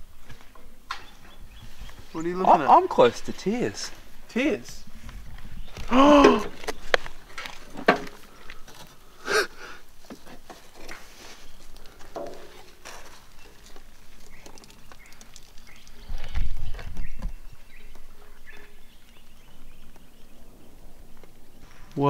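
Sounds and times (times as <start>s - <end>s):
rustling and clicks of debris: 5.0s - 9.1s, 9.8s - 20.1s.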